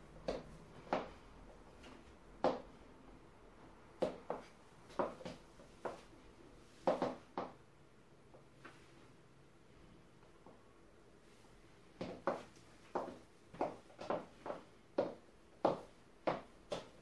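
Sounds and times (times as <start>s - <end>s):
high heels clicking on wooden floor: 0.2s - 2.7s, 4.0s - 6.0s, 6.8s - 7.6s, 12.0s - 17.0s.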